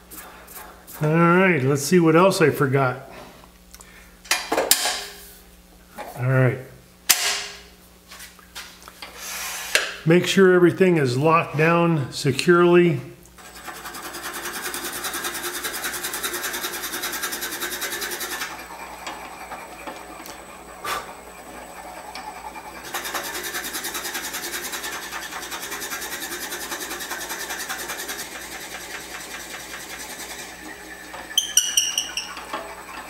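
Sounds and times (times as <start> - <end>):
drill bit boring through wood: 13.4 - 33.0
wood lathe running: 13.4 - 33.0.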